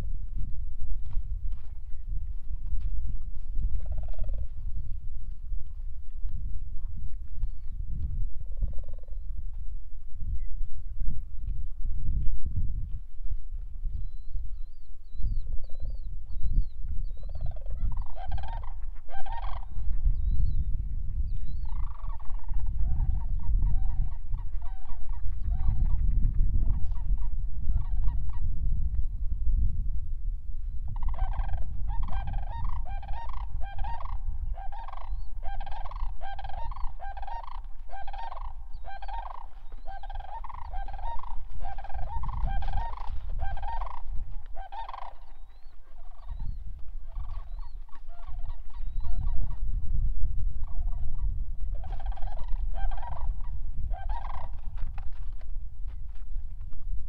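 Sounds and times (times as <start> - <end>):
large birds honking: 31.0 - 46.4, 47.0 - 49.5, 51.8 - 54.6.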